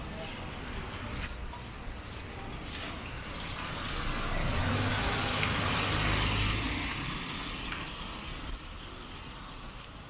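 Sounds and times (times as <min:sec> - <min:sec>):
vehicle passing on wet road: 0:02.6 - 0:10.0.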